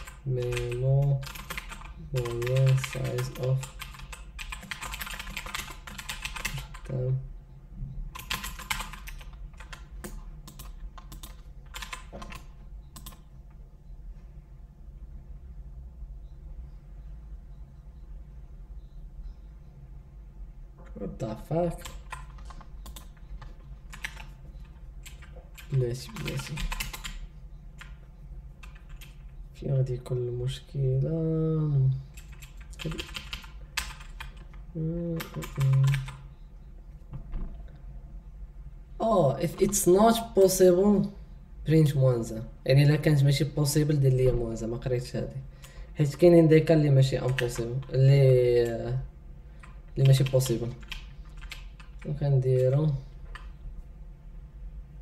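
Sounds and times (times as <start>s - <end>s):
computer keyboard typing: 0.0s - 7.2s, 8.1s - 13.3s, 20.9s - 29.4s, 32.1s - 36.5s, 39.2s - 40.7s, 46.1s - 49.0s, 49.6s - 53.6s.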